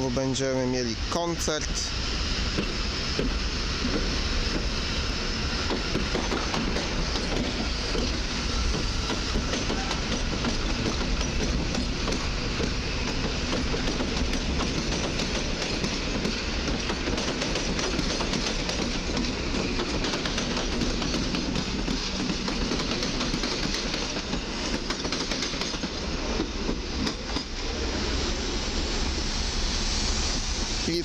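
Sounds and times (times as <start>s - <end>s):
electric train rumbling past: 0.0s - 31.0s
wheels clacking over rail joints: 5.6s - 27.6s.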